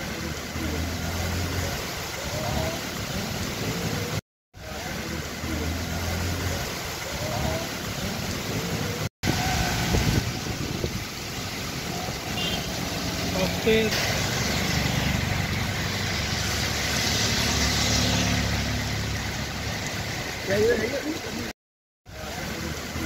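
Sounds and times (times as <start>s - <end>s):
heavy rain: 0.0s - 21.5s, 22.1s - 23.0s
traffic on wet road: 0.0s - 23.0s
strong wind: 9.2s - 12.4s.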